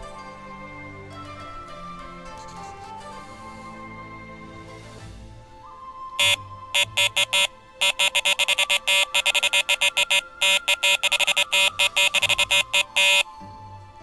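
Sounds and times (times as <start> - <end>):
electronic bite alarm beeping: 6.2 - 13.2.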